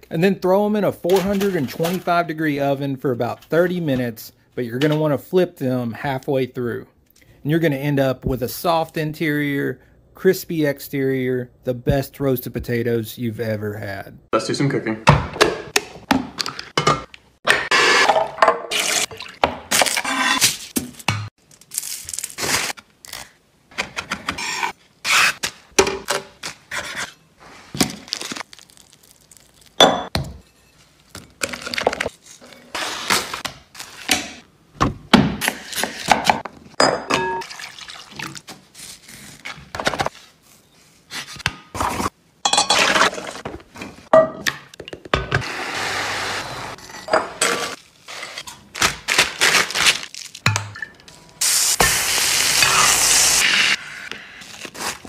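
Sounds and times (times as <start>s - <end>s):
aluminium foil handled: 21.4s - 23.2s.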